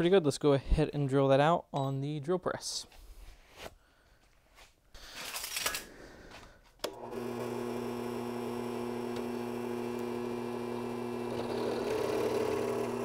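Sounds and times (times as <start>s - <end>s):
drill press motor humming: 6.8s - 13.0s.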